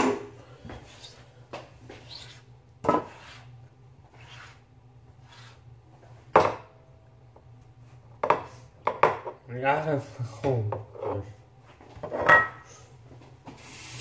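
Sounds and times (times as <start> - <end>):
low steady hum: 0.0 - 13.6
faint rubbing: 1.9 - 5.8.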